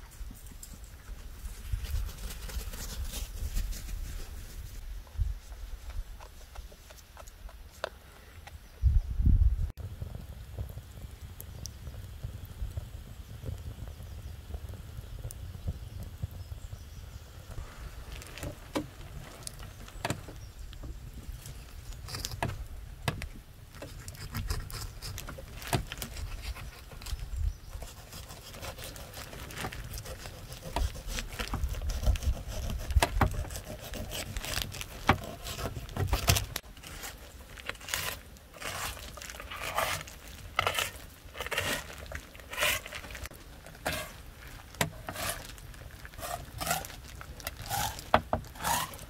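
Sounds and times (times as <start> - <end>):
knife scraping through fish flesh: 27.8 - 43.2.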